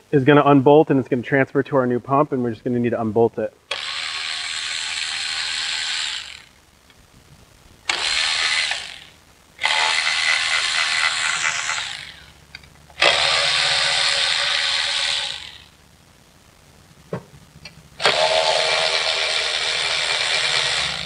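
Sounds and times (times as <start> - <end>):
cordless ratchet spinning bolts: 3.7 - 6.5, 7.9 - 12.3, 18.0 - 21.0.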